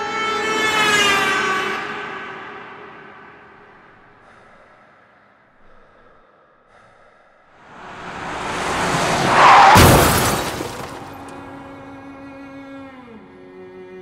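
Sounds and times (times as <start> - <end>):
rushing noise: 7.6 - 11.5
car crash impact: 7.7 - 11.6
glass shattering: 9.3 - 11.4.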